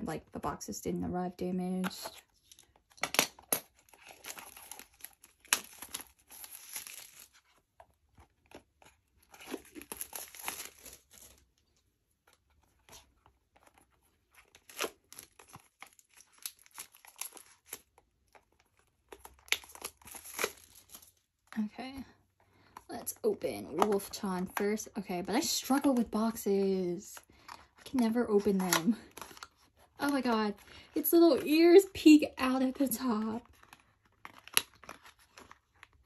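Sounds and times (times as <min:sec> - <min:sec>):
thin card scraping and crinkling: 0:03.8 - 0:07.6.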